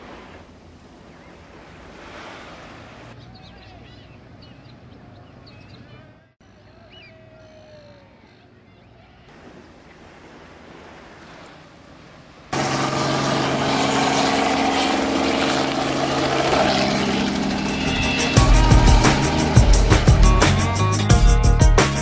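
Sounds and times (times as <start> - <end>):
helicopter engine and rotor: 12.6 - 21.0.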